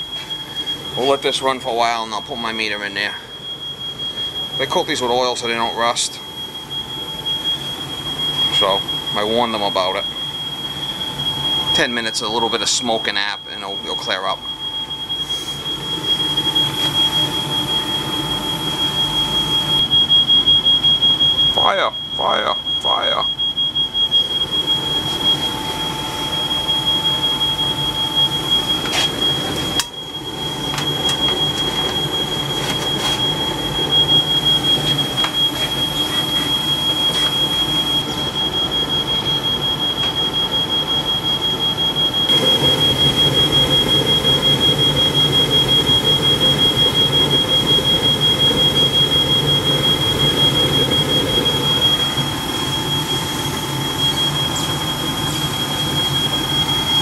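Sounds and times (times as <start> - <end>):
furnace burner and blower rumble: 0.0 - 57.0
smoke alarm shrill tone: 0.0 - 57.0.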